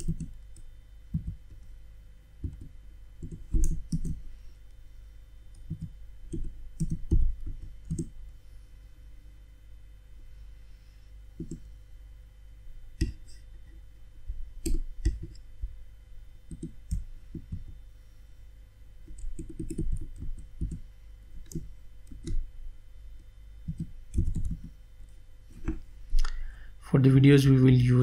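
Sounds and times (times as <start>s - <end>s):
computer keyboard typing: 0.0s - 1.7s, 2.4s - 4.2s, 5.5s - 8.1s, 11.4s - 11.6s, 16.5s - 17.7s, 19.0s - 20.8s, 21.4s - 22.4s, 23.6s - 24.8s.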